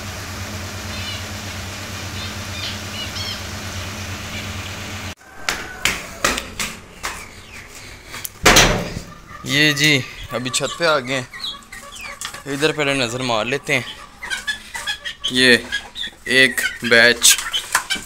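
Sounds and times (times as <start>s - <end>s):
steady low hum: 0.0s - 5.2s
finches chirping: 2.1s - 4.9s, 9.2s - 17.0s.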